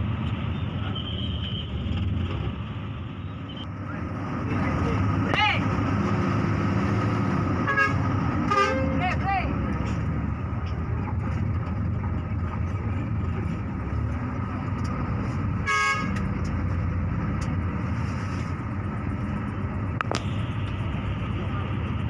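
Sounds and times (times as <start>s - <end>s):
bus engine running: 0.0s - 22.0s
bus horn toot: 7.6s - 9.2s, 15.6s - 16.3s.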